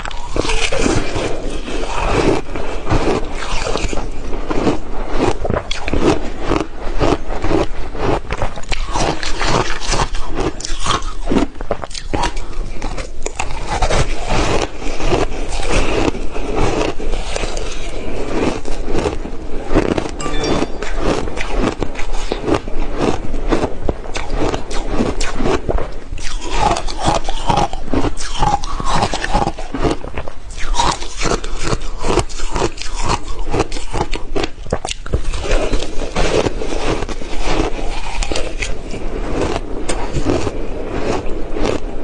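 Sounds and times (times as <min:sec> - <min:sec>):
crushed ice being chewed: 0:00.0 - 0:42.0.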